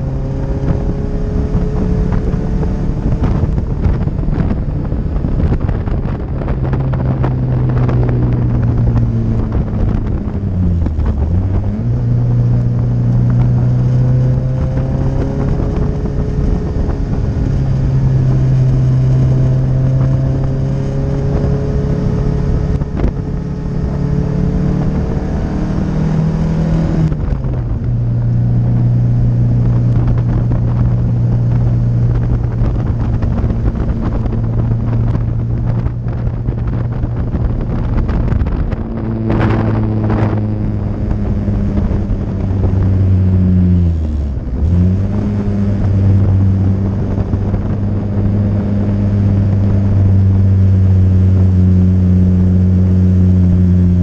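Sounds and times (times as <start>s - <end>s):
car engine at high revs: 0.0s - 54.0s.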